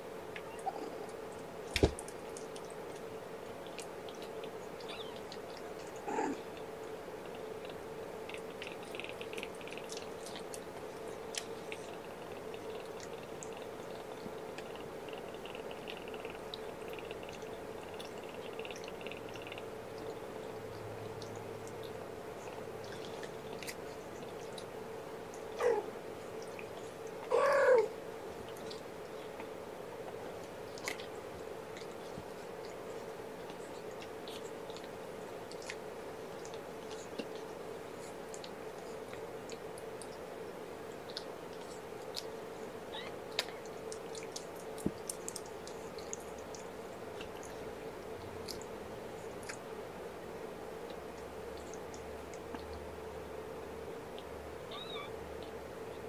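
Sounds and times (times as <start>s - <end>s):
faint steady hum: 0.0s - 56.0s
kitten squeak: 54.7s - 55.1s
cat meow: 54.7s - 55.2s.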